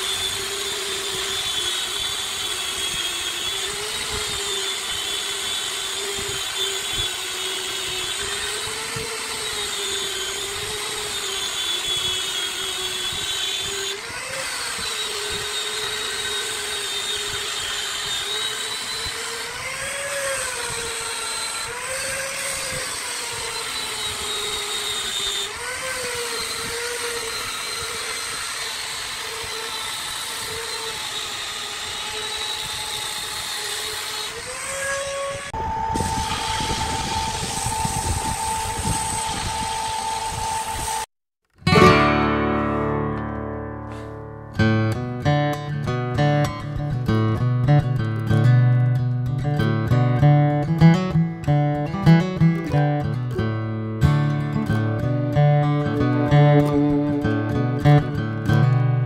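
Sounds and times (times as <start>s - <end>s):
angle grinder sanding wood: 0.0s - 41.1s, 49.6s - 59.0s.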